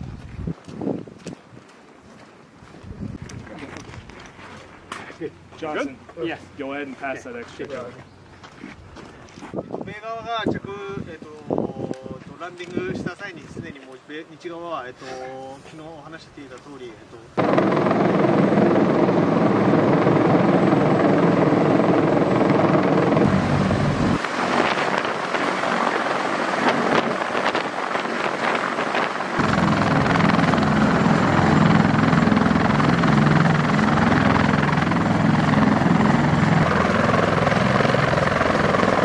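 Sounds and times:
helicopter rotor and engines: 17.4 - 39.0.

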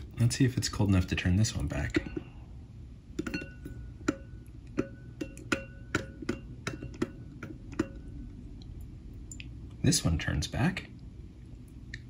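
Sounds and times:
toy tapping against a bowl: 3.2 - 8.2.

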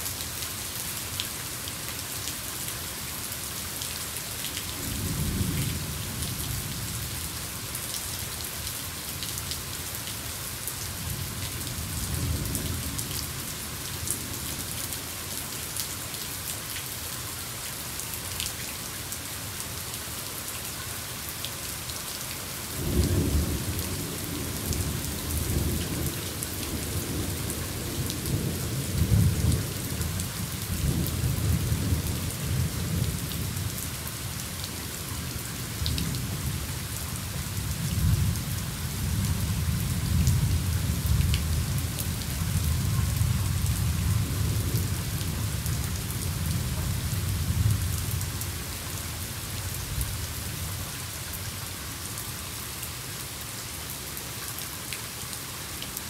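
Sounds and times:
steady rain: 0.0 - 56.0.

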